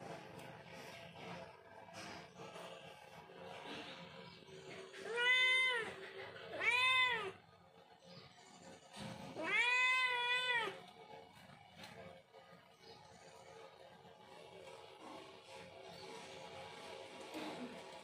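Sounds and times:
cat meowing: 0:05.0 - 0:07.4, 0:09.3 - 0:10.9.

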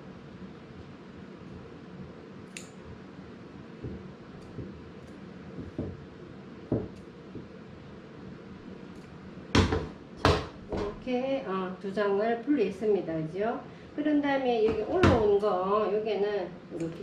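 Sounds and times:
scissors snipping threads: 0:02.5 - 0:02.8
knock: 0:05.6 - 0:06.0, 0:06.7 - 0:07.5, 0:09.6 - 0:10.9.

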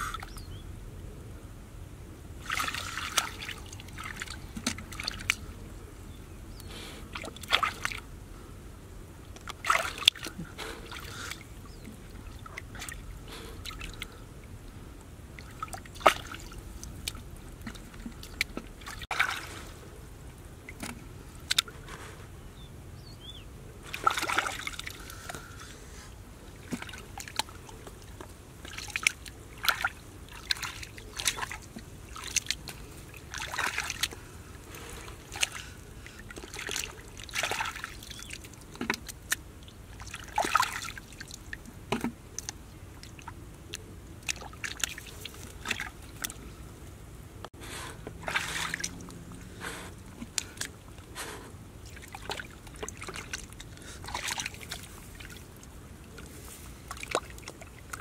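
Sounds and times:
hands splashing in muddy water: 0:02.4 - 0:05.4, 0:07.1 - 0:08.0, 0:09.4 - 0:11.5, 0:15.4 - 0:19.8, 0:23.9 - 0:25.4, 0:26.6 - 0:46.5, 0:48.1 - 0:58.0.

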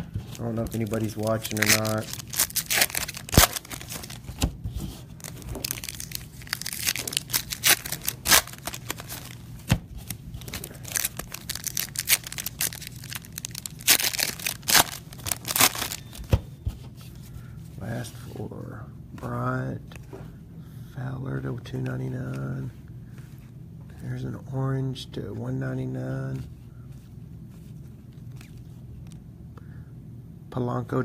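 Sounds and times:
cards rustling: 0:00.1 - 0:16.4, 0:26.0 - 0:29.2
foil wrappers crinkling and tearing: 0:00.3 - 0:04.5, 0:05.1 - 0:16.4.

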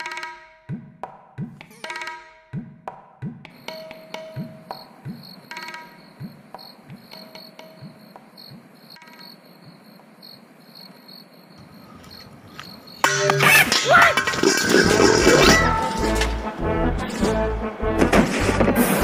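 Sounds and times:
crickets chirping: 0:03.5 - 0:14.9
loud music: 0:14.7 - 0:19.0.

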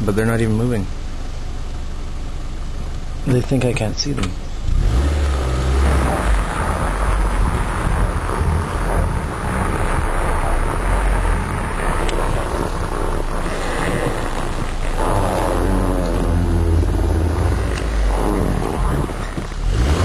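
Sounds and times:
car engine rumbling: 0:00.0 - 0:20.0.

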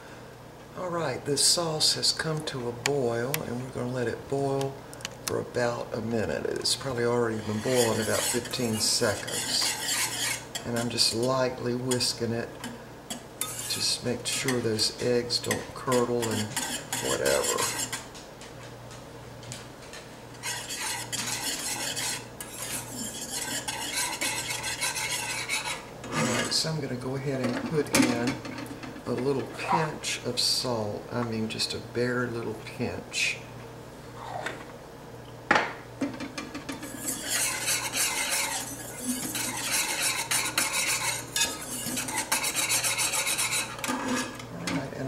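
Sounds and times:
whisk scraping a pot: 0:06.6 - 0:12.3, 0:13.1 - 0:18.1, 0:20.3 - 0:26.6, 0:36.6 - 0:45.0.

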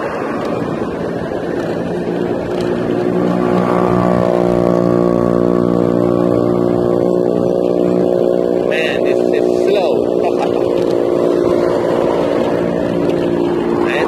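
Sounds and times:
vehicle engine hum: 0:00.0 - 0:14.0
wind and road noise: 0:00.0 - 0:14.0.

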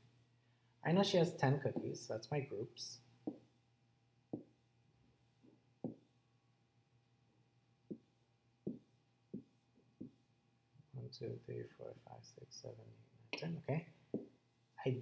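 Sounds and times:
stylus tapping on touchscreen: 0:03.2 - 0:03.5, 0:04.3 - 0:04.6, 0:05.8 - 0:06.1, 0:07.9 - 0:10.2, 0:14.1 - 0:14.4.

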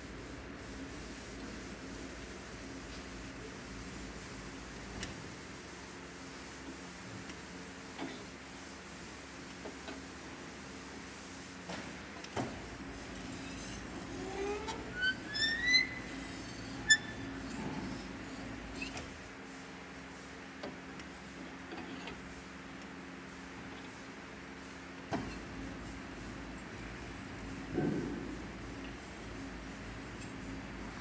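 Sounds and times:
bending machine humming: 0:12.4 - 0:19.3
rising squeal: 0:14.2 - 0:17.2.

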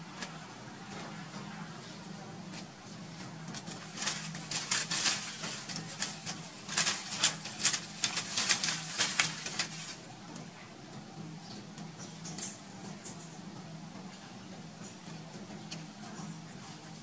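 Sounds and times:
dry leaves crackling and rustling: 0:00.0 - 0:10.7.

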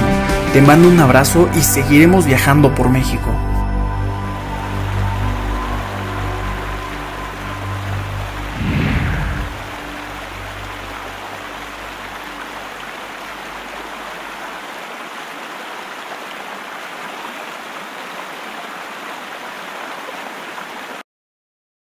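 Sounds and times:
river water rushing over rocks: 0:04.2 - 0:21.0.

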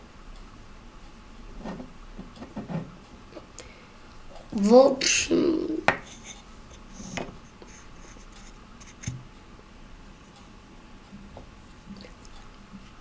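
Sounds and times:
stone axe scraping on wooden table: 0:01.6 - 0:02.9.

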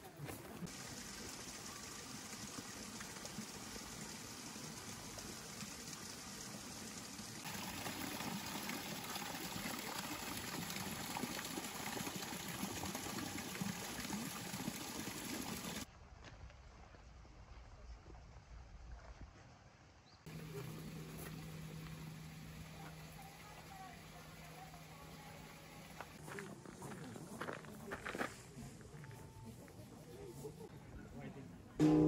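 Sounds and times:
waterfall splashing over rocks: 0:00.7 - 0:15.9.

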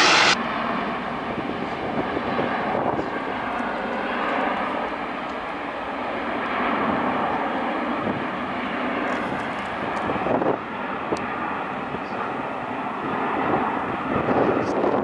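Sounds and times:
jet plane climbing: 0:00.0 - 0:08.2.

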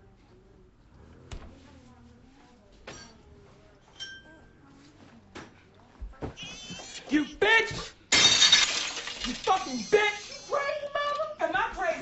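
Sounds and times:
faint background voices: 0:00.0 - 0:12.0
kitchenware clinking: 0:03.9 - 0:04.5, 0:08.1 - 0:10.0.

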